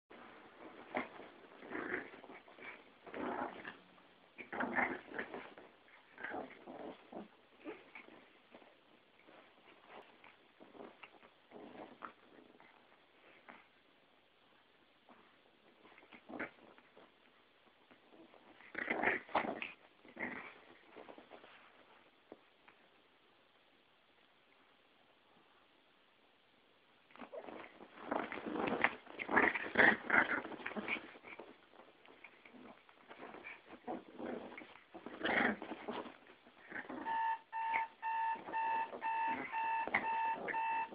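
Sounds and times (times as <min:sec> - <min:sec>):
dogs play-fighting vocalizing: 0:00.7 - 0:08.6, 0:18.0 - 0:21.6, 0:27.1 - 0:37.3.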